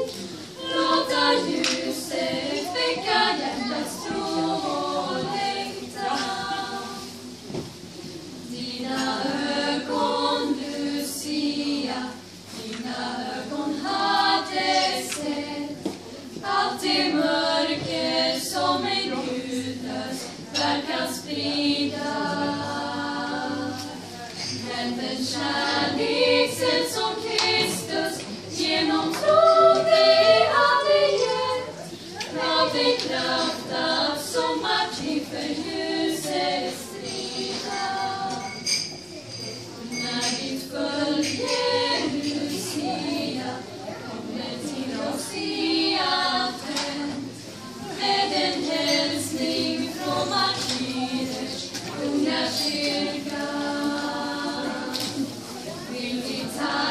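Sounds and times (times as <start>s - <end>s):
women's choir singing unaccompanied: 0.0s - 56.9s.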